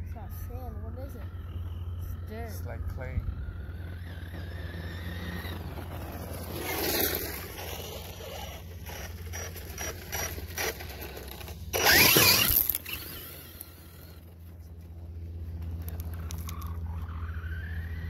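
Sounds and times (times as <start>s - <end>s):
rc car motor whine: 0.0s - 18.0s
knocks and ticks over rough ground: 3.6s - 17.2s.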